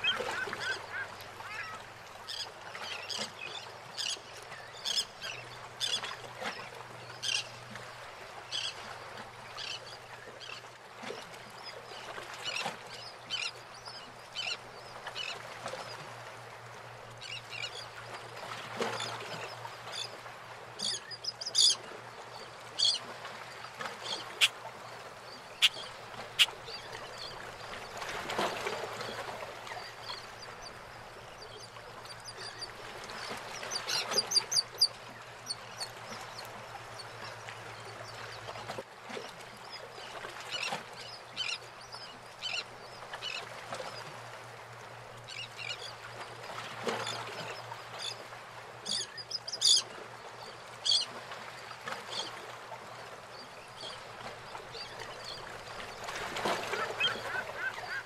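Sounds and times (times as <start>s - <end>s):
birds crying: 0.0s - 1.8s, 56.6s - 58.0s.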